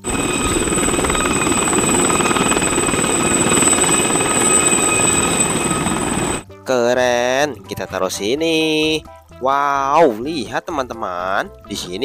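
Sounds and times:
helicopter rotor chop: 0:00.0 - 0:06.4
high turbine whine: 0:00.0 - 0:06.4.

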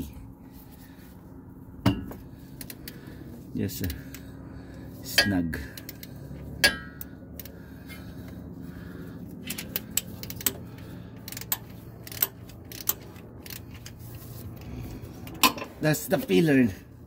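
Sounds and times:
ratchet clicking: 0:09.4 - 0:14.2.

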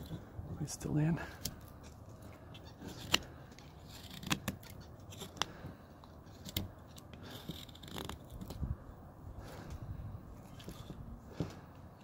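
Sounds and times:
knife cutting wood: 0:01.3 - 0:08.7, 0:10.4 - 0:11.6.

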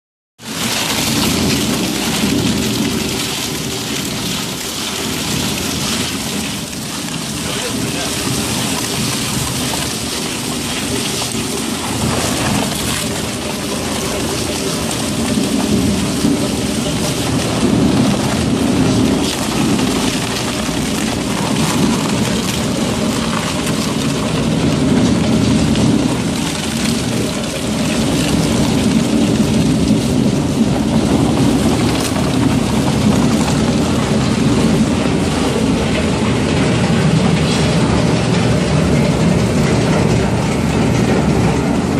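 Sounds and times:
shredder ripping plastic: 0:00.4 - 0:35.8
machine low running: 0:00.4 - 0:41.9.

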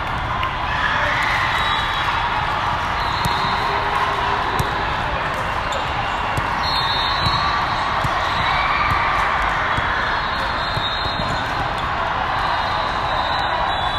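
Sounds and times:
volleyballs thudding on floor: 0:04.5 - 0:04.9, 0:07.2 - 0:10.0.

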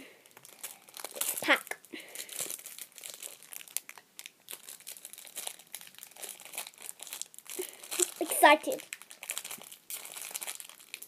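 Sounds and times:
plastic wrapper crinkling: 0:00.2 - 0:11.0.

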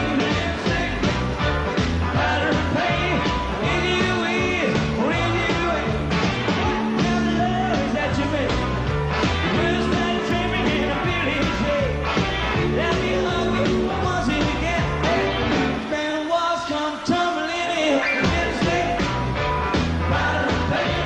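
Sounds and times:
man singing lead vocal: 0:00.0 - 0:01.2, 0:02.1 - 0:06.1, 0:06.9 - 0:08.6, 0:09.4 - 0:19.3, 0:20.0 - 0:21.0
electric guitars: 0:00.0 - 0:16.0
bass guitar: 0:00.0 - 0:16.1, 0:17.5 - 0:21.0
drums: 0:00.0 - 0:21.0.

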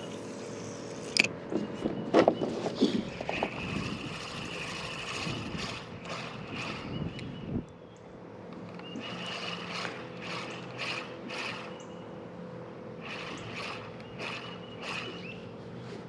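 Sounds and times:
fishing reel gears cranking: 0:03.4 - 0:07.2, 0:08.8 - 0:11.8, 0:13.0 - 0:15.4.

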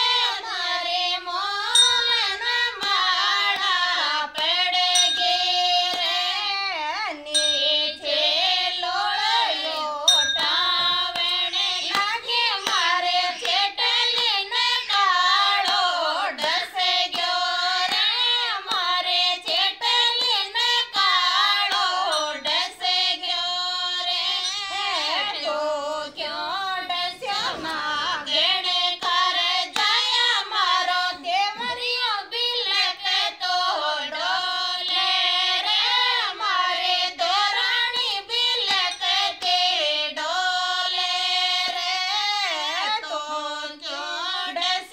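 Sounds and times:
women singing folk song: 0:00.0 - 0:44.9
hand claps: 0:01.4 - 0:06.4, 0:09.6 - 0:22.6, 0:27.2 - 0:32.0, 0:37.2 - 0:39.7.

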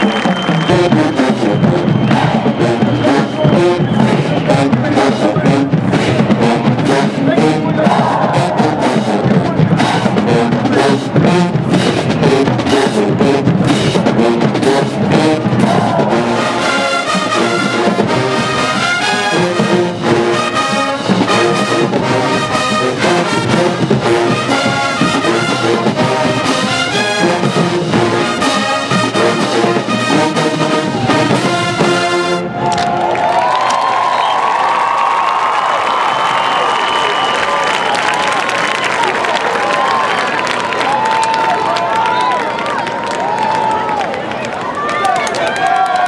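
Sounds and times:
brass held chords: 0:00.0 - 0:32.6
drum strokes: 0:00.0 - 0:32.7
marching band playing: 0:00.0 - 0:45.8.

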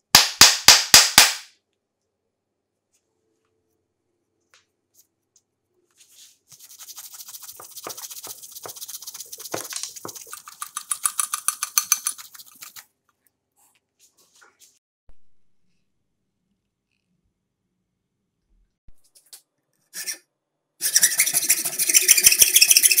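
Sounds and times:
cloth scrubbing knife handle: 0:06.5 - 0:12.8.

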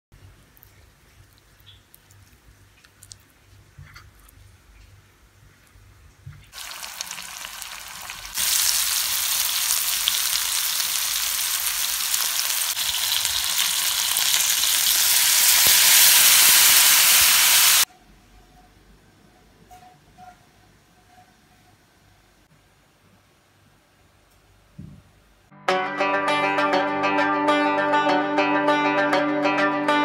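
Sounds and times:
chicken sizzling in oil: 0:06.5 - 0:17.9.

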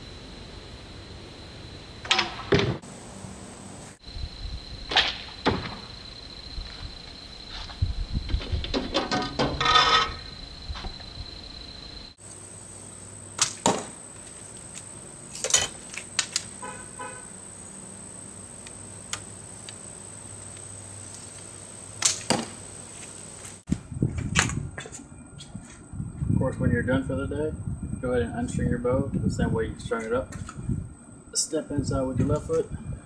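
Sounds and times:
arrows hitting foam target: 0:13.4 - 0:14.0, 0:22.0 - 0:22.6.

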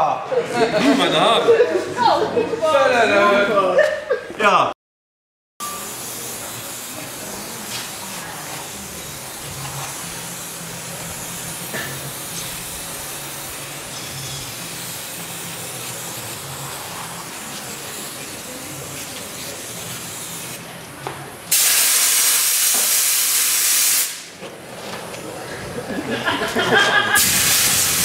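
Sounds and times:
aerosol can spraying: 0:05.6 - 0:20.7, 0:21.5 - 0:24.3, 0:27.2 - 0:28.0
compressed air hissing: 0:05.6 - 0:20.8, 0:21.4 - 0:24.4, 0:27.1 - 0:28.0.

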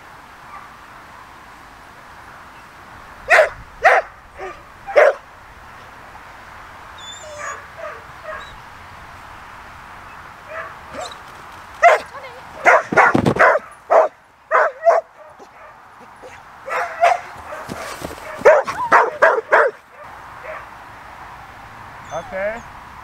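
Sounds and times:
dog barking: 0:03.3 - 0:05.2, 0:07.3 - 0:08.6, 0:10.5 - 0:11.2, 0:11.8 - 0:20.7.

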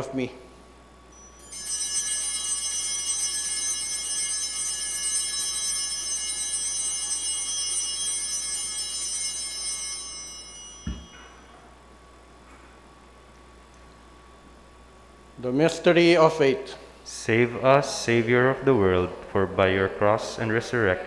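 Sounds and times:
altar bells ringing: 0:01.1 - 0:12.5
soft thump: 0:10.8 - 0:11.0.

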